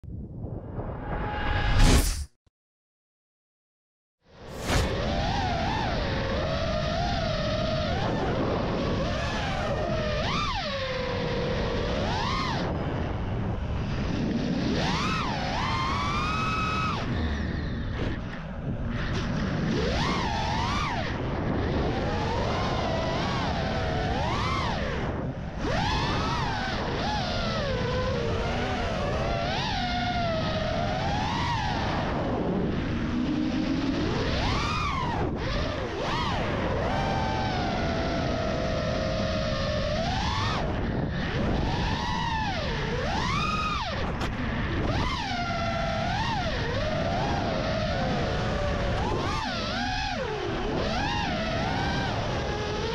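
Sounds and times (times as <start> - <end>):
steady rushing noise: 0.2 - 2.3, 4.4 - 16.1
rush of air: 0.3 - 2.3, 4.5 - 5.0
drone motors whining: 4.5 - 52.9.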